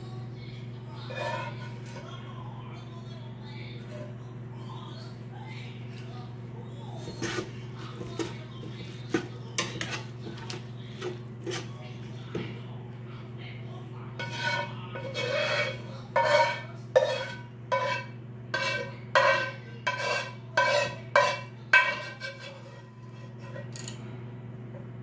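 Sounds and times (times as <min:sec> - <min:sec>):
steady low hum: 0:00.0 - 0:25.0
metal utensil scraping steel pot: 0:01.1 - 0:02.0, 0:07.0 - 0:11.7, 0:14.2 - 0:24.0.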